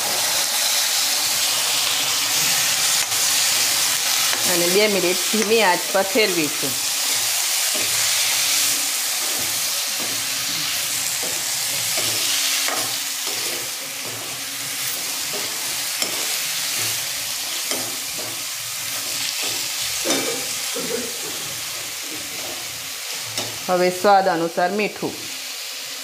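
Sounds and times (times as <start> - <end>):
vegetables sizzling in hot oil: 0.0 - 26.0
metal spatula scraping pan: 6.9 - 23.6.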